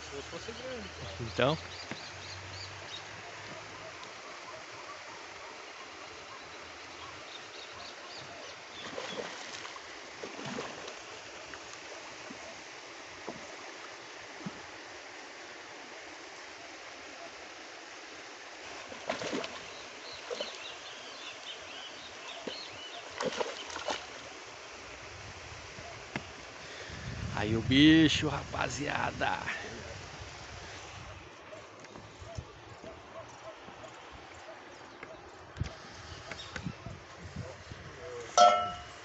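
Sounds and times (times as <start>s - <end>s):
fish splashing in water: 8.6s - 12.6s, 18.7s - 20.7s, 22.5s - 24.3s.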